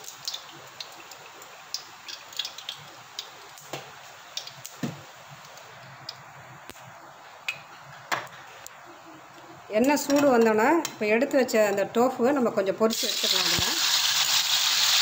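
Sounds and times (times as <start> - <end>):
oil hissing and crackling in pan: 0.0 - 6.8, 12.9 - 15.0
cooking oil pouring into pan: 12.9 - 15.0.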